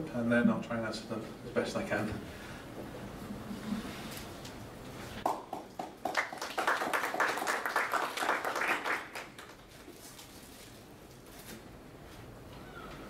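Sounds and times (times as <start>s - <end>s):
audience applauding: 5.2s - 9.7s.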